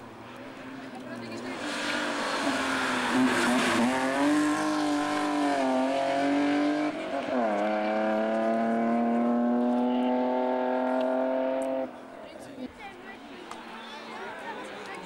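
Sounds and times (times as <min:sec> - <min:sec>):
race car engine at high revs: 0:00.6 - 0:12.0.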